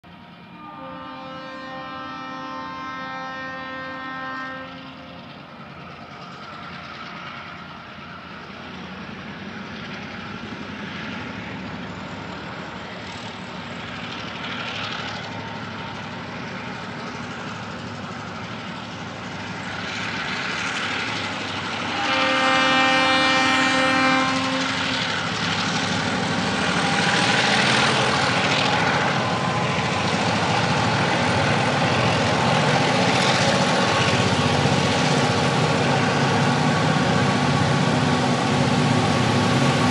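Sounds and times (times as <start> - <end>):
diesel locomotive engines: 0.0 - 39.9
train horn: 0.2 - 5.8, 19.8 - 25.7.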